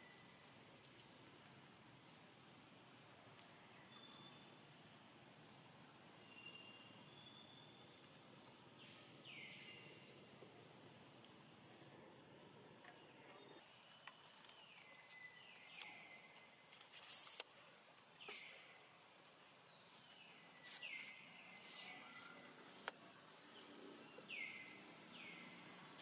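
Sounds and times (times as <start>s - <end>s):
hissy rustles: 16.6s - 17.6s.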